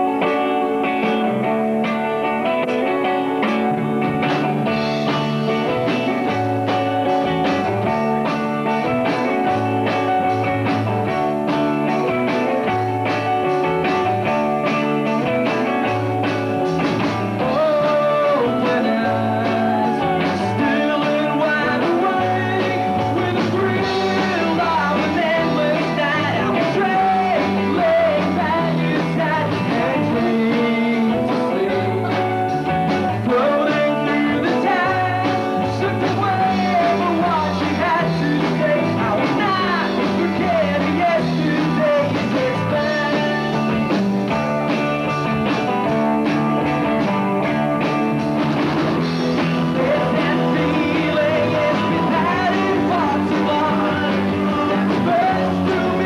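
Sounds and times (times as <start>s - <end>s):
rock band playing live: 0.0s - 56.0s
male lead vocal: 17.3s - 44.0s, 49.2s - 56.0s.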